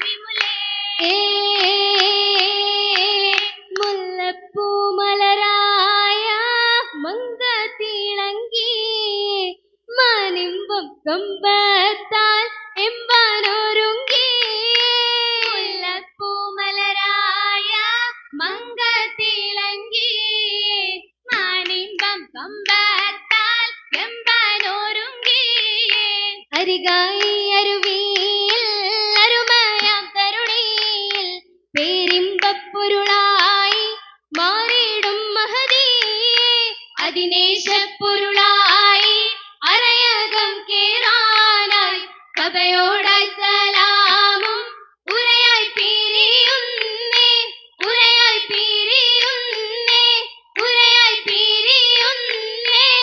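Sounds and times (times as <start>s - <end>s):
hand clapping: 0.0s - 4.0s, 13.3s - 15.9s, 21.3s - 53.0s
girls singing in unison: 0.0s - 53.0s.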